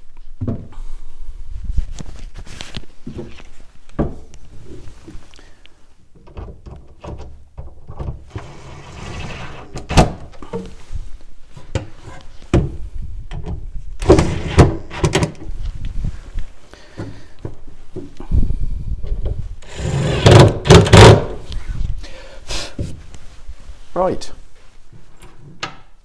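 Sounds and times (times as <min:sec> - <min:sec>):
wood knocks and thumps: 0:00.4 - 0:00.8, 0:04.0 - 0:04.3
impact driver driving screws: 0:19.6 - 0:21.3.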